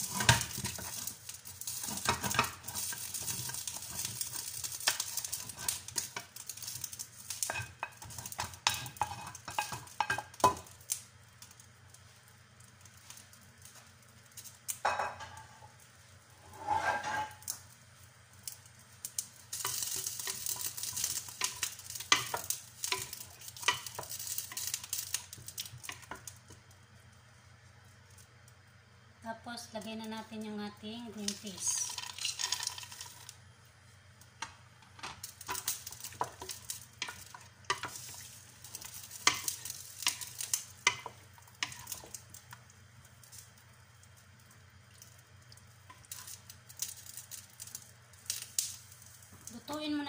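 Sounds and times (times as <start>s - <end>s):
wooden spoon scraping a pot: 0.0s - 6.3s, 7.4s - 10.2s, 16.4s - 17.5s, 35.5s - 42.1s
stew sizzling in a pot: 0.0s - 50.0s.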